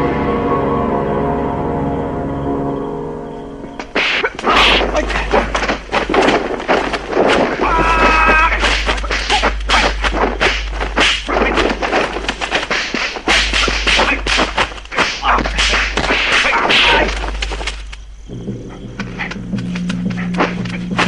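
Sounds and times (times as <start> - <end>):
swishing strikes: 3.9 - 7.6, 8.5 - 17.1
punch and kick impacts: 4.0 - 17.7.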